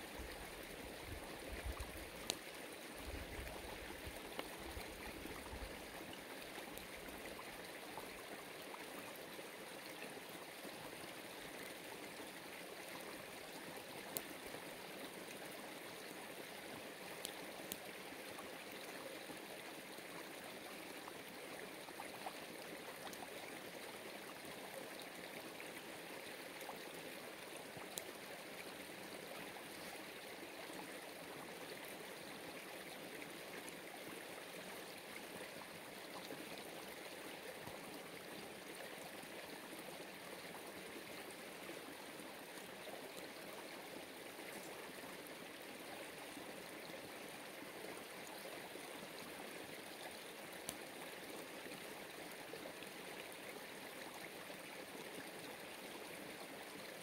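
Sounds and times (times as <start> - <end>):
small stream running: 0.0 - 57.0
faint ticks: 1.6 - 7.4, 12.9 - 19.1, 23.0 - 23.5, 27.7 - 28.2, 37.6 - 37.9, 50.0 - 51.0.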